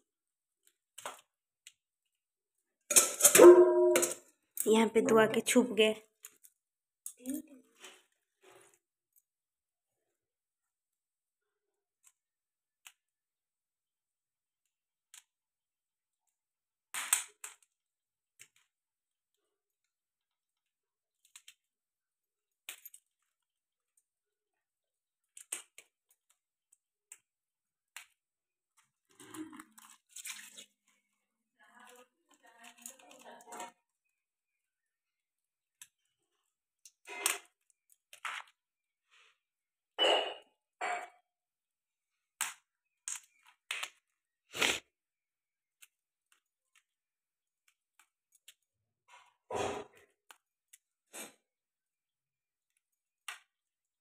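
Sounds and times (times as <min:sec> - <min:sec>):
crab shells cracking: 0:16.9 - 0:17.7, 0:25.2 - 0:28.2, 0:32.0 - 0:33.4, 0:42.4 - 0:44.1
crunching and crackling: 0:25.2 - 0:33.9.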